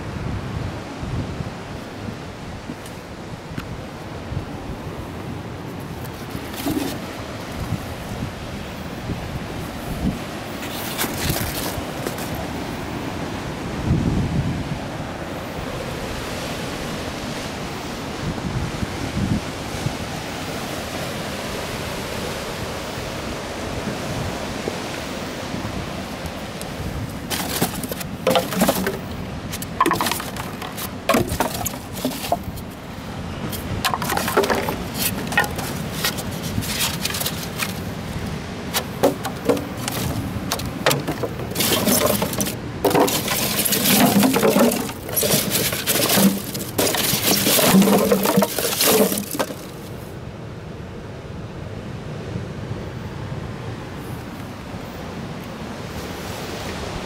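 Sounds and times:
wind noise on microphone: 0.0 - 12.5, 13.6 - 20.5
surf: 0.0 - 50.2
plastic bottles crackling and clattering: 6.0 - 7.1, 10.6 - 12.4, 27.3 - 32.8, 33.5 - 37.9, 38.7 - 49.9.

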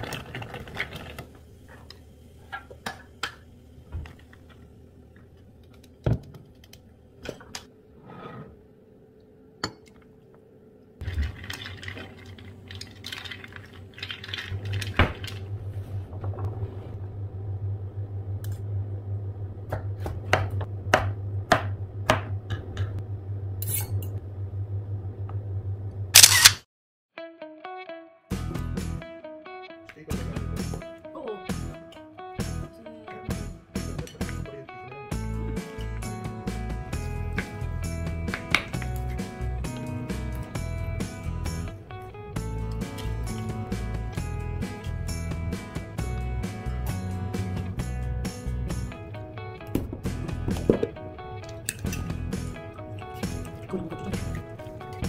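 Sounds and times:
steady low hum: 14.4 - 26.2.

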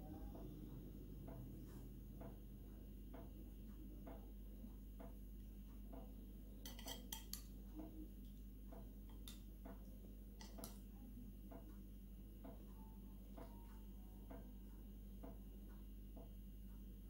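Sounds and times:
metal spoon clinking on plates: 6.6 - 7.5.

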